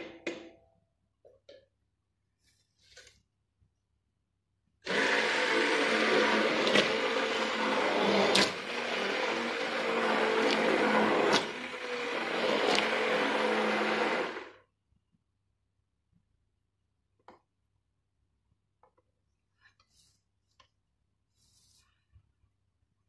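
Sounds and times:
stick blender motor running: 4.8s - 14.6s.

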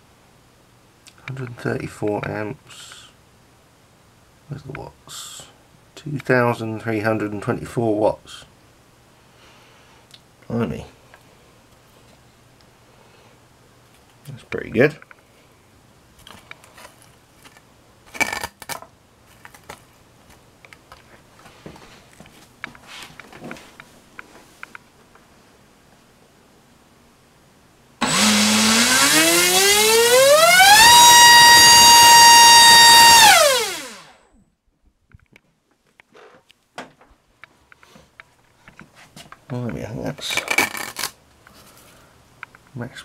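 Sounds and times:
soft rustle: 21.0s - 25.6s, 37.5s - 42.2s.

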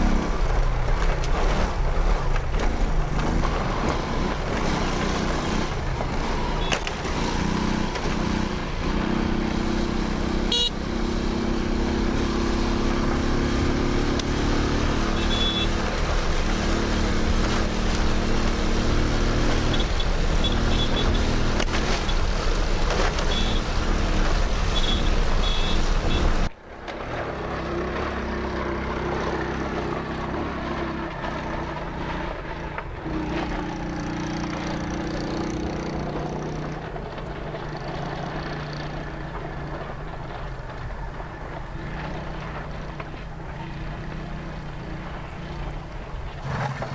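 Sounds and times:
motorcycle engine running: 2.5s - 26.5s.

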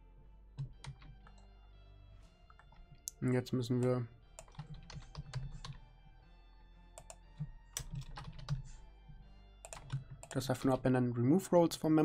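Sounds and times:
typing on keyboard: 0.6s - 1.4s, 4.4s - 5.8s, 7.0s - 8.7s, 9.6s - 10.5s.

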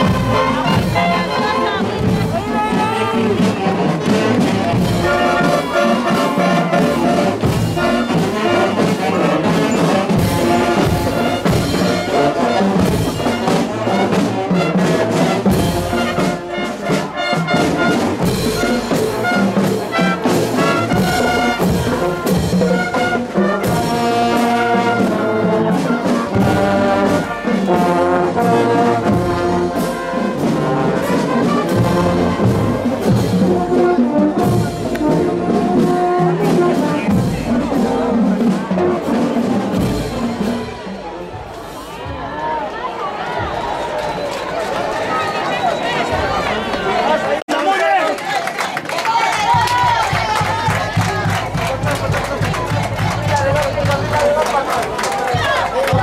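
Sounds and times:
saxophones: 0.0s - 38.1s
trumpets: 0.0s - 42.3s
horns: 0.0s - 56.0s.

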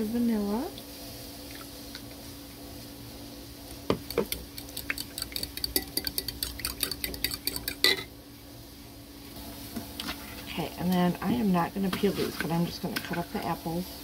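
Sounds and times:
metal utensil clinking in a bowl: 4.9s - 8.1s.

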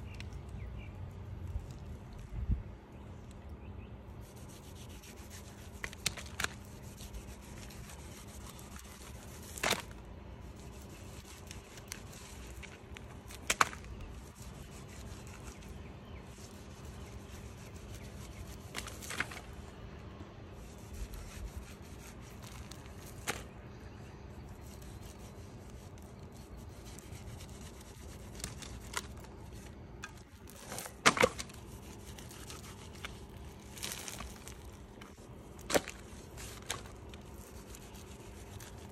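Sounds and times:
knife scraping plaster: 4.2s - 9.9s.

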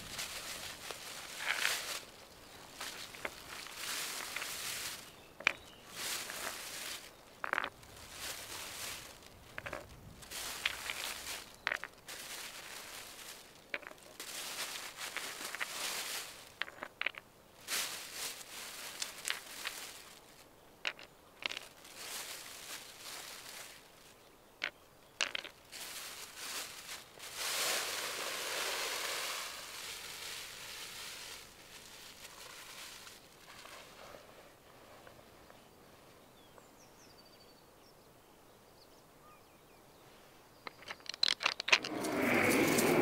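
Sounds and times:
plastic bag rustling: 0.0s - 20.4s, 21.4s - 24.1s, 25.2s - 34.4s.

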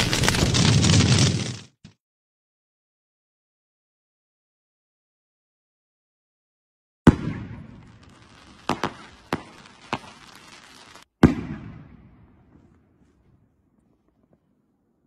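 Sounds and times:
firework cracks: 0.0s - 1.6s, 7.1s - 11.7s.

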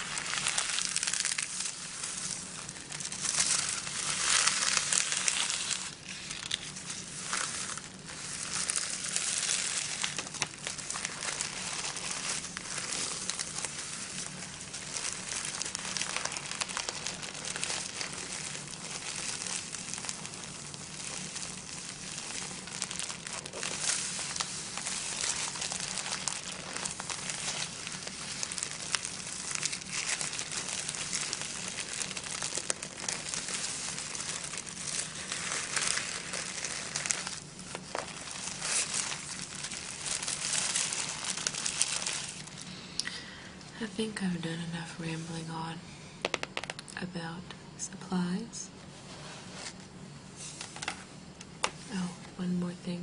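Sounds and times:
tissue paper crinkling: 0.0s - 42.9s, 48.8s - 52.3s.

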